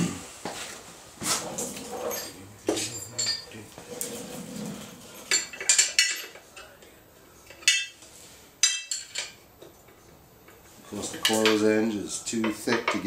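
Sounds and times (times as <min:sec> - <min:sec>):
metal hand tools clinking: 0:01.8 - 0:04.1, 0:04.8 - 0:06.7.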